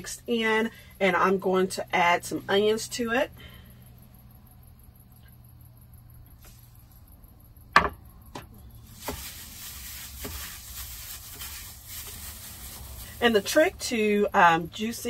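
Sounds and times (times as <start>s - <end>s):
steady low hum: 0.0s - 15.0s
faint hiss: 8.8s - 13.8s.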